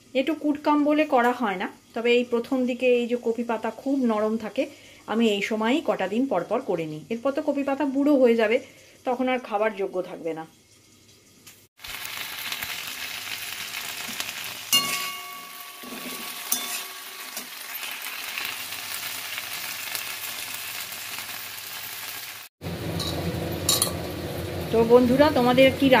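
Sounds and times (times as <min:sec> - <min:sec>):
vegetables sizzling in a pan: 0:00.0 - 0:26.0
spatula clanking against pan: 0:14.7 - 0:17.5.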